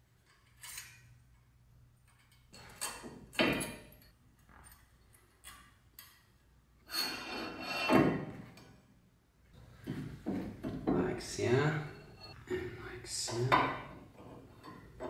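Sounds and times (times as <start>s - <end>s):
metal scraping rub: 6.9s - 8.0s.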